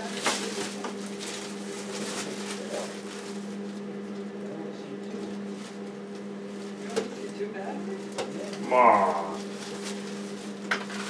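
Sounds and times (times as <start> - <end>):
plastic packaging crinkling: 0.0 - 3.6
steady low hum: 7.6 - 10.4.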